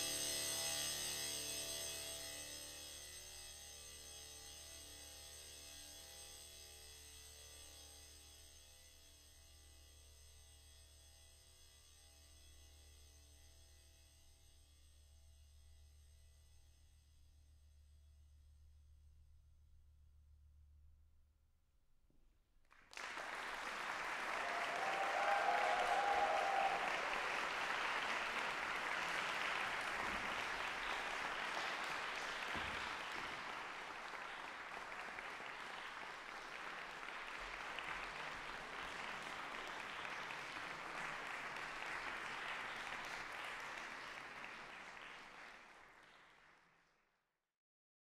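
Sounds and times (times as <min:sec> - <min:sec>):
audience applauding: 0:22.8 - 0:46.8
person whooping: 0:24.4 - 0:27.3.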